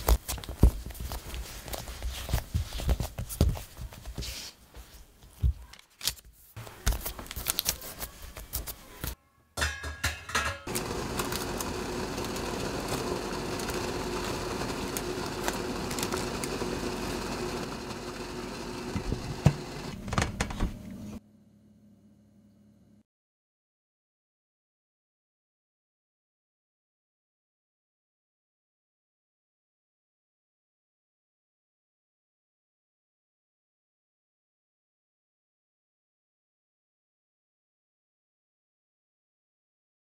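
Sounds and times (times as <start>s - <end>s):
hands handling dough: 0.0s - 9.2s.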